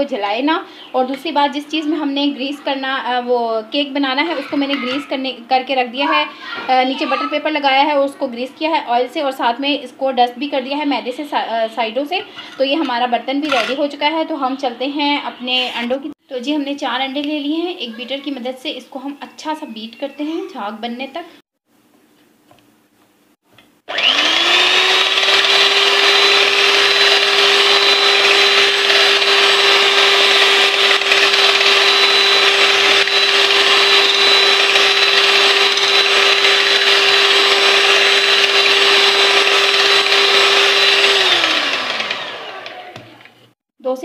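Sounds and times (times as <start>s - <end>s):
electric hand beater whirring: 23.9s - 43.4s.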